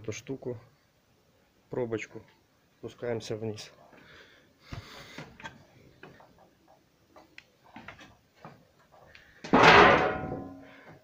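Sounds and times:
light footsteps: 0:03.8 - 0:09.6
loud ringing metallic clang: 0:09.6 - 0:10.6.

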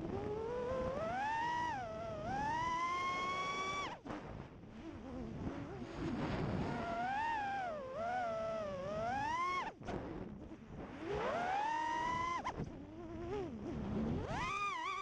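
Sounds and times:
drone motors whining: 0:00.2 - 0:04.0, 0:14.2 - 0:15.0.

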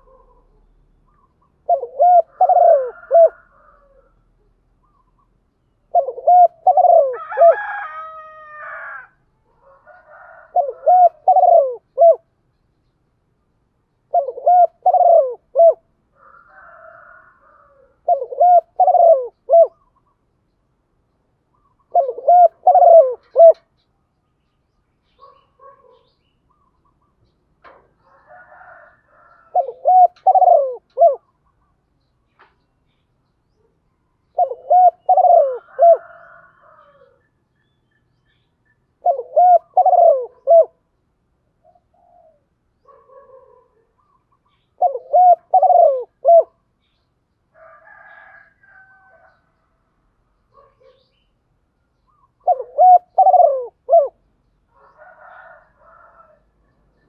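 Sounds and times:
dove cooing: 0:00.0 - 0:05.2, 0:05.9 - 0:12.3, 0:14.1 - 0:20.0, 0:21.5 - 0:23.7, 0:27.6 - 0:31.4, 0:34.2 - 0:37.2, 0:39.0 - 0:40.8, 0:41.6 - 0:46.6, 0:52.1 - 0:56.4
faint bird calls: 0:00.0 - 0:13.0, 0:14.0 - 0:40.9, 0:41.6 - 0:47.0, 0:52.0 - 0:57.0.

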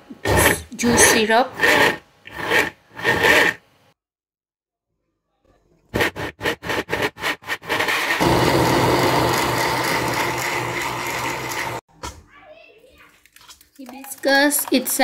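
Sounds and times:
electric blender grinding: 0:00.4 - 0:03.6, 0:07.6 - 0:11.8.

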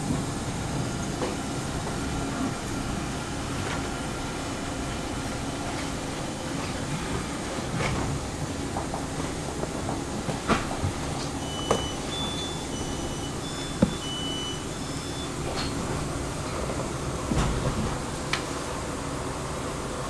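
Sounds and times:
train rumble: 0:00.0 - 0:20.0
electronic beeps: 0:11.4 - 0:15.3
knocks: 0:13.8 - 0:14.0.

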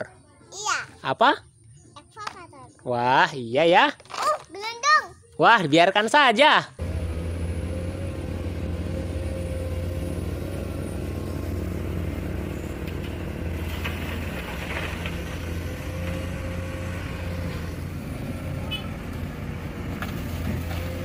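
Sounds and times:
bucket rattling in gravel: 0:04.0 - 0:04.6, 0:13.0 - 0:15.8
excavator diesel engine running: 0:06.8 - 0:21.0.

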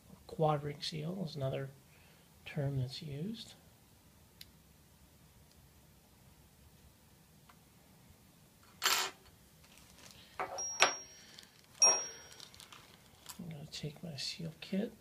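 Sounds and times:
plastic bag rustling: 0:09.6 - 0:10.4, 0:11.2 - 0:13.5
small parts clicking and ringing: 0:10.4 - 0:13.4.

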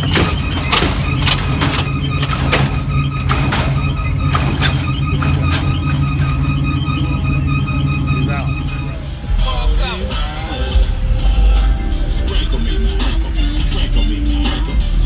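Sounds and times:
sharp suspension clanks: 0:00.0 - 0:09.0
hydraulic pump whine: 0:00.0 - 0:15.0
low rumble: 0:00.0 - 0:15.0.

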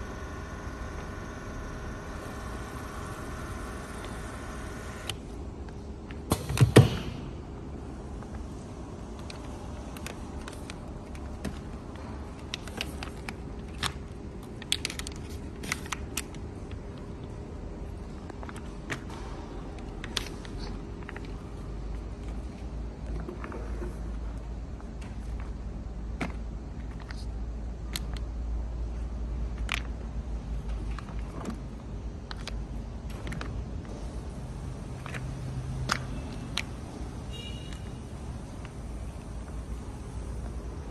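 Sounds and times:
low machine hum: 0:00.0 - 0:13.6
steady low hum: 0:00.0 - 0:40.9
plastic pouches clicking and crinkling: 0:09.2 - 0:17.2, 0:30.7 - 0:33.9.

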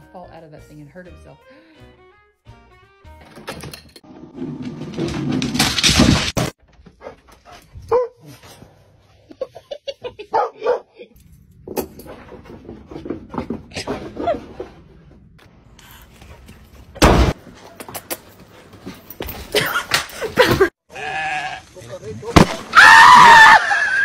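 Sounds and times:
dog barking: 0:07.9 - 0:08.3, 0:10.3 - 0:11.0.

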